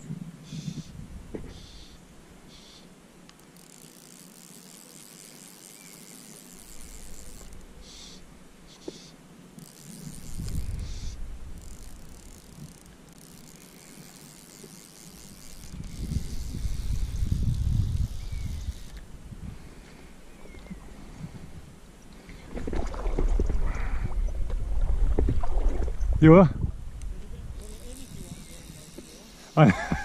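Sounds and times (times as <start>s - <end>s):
wind rumbling on microphone: 0.0s - 1.8s, 9.9s - 12.8s, 15.2s - 29.0s
fly reel ratchet buzzing: 1.5s - 19.1s, 27.5s - 30.0s.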